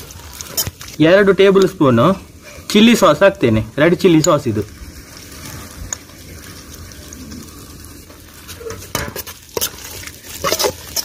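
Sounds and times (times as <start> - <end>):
spices sizzling in oil: 0.0 - 11.0
metal spoon scraping a wok: 8.5 - 11.0.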